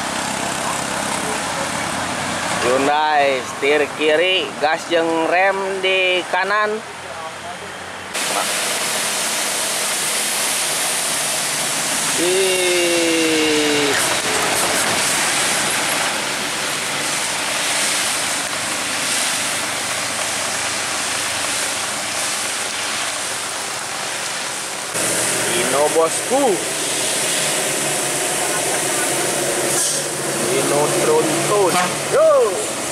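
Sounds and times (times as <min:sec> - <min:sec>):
traffic on a wet road: 0:00.0 - 0:32.9
rain hissing: 0:08.1 - 0:32.9
two-note vehicle horn: 0:31.6 - 0:32.0.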